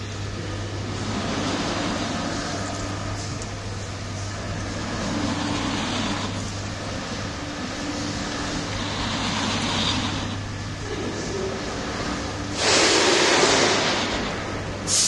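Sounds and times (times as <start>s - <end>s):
low motor hum: 0.0s - 15.0s
mechanical whirr: 0.0s - 15.0s.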